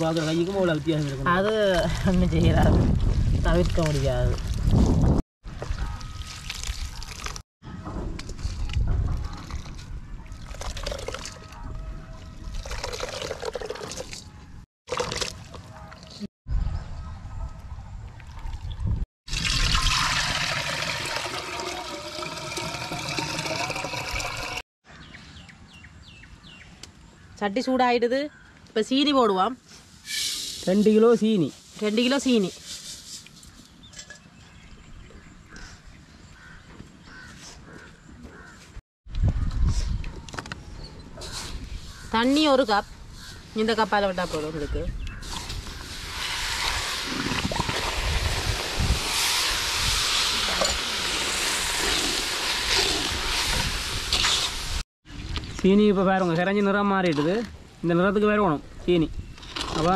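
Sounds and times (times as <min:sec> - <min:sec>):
liquid trickling and sloshing: 0:05.6 - 0:07.4
crows cawing: 0:36.4 - 0:38.6.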